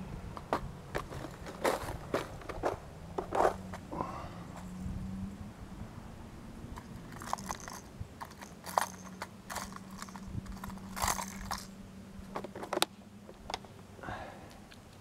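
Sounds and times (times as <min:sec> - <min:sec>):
plastic lures clattering in box: 0:06.8 - 0:11.7.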